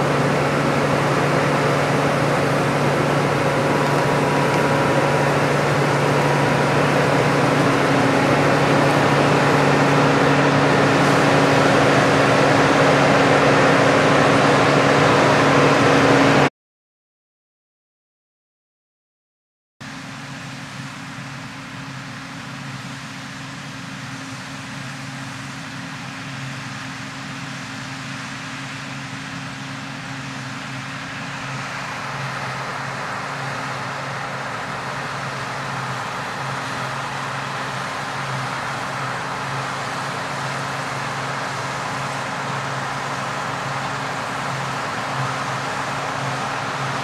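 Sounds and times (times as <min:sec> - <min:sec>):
combine harvester running: 0:00.0 - 0:16.5, 0:19.9 - 0:47.0.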